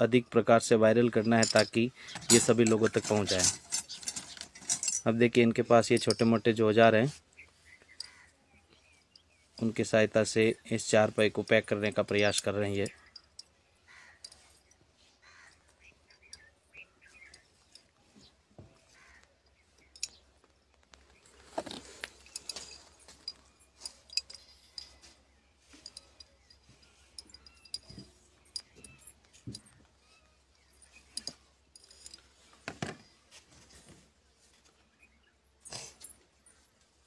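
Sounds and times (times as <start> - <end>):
metal rod clinking inside glass bottle: 1.1 - 6.6, 11.4 - 14.7, 19.8 - 20.3, 21.8 - 29.8, 30.6 - 32.4.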